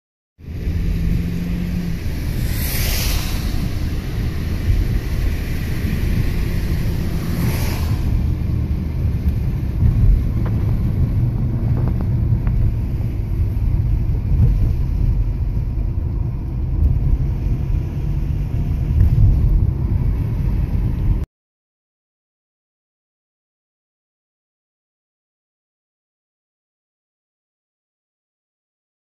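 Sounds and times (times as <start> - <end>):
car driving on wet road: 0.4 - 21.3
tyre spray hiss: 2.0 - 4.7.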